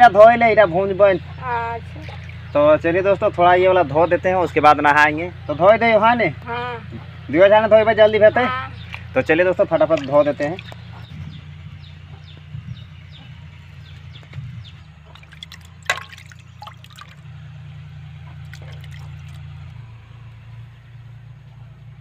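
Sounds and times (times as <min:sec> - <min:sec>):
water sloshing in a steel bucket: 0:01.8 - 0:02.6, 0:08.8 - 0:11.1, 0:15.0 - 0:17.3, 0:18.3 - 0:19.6.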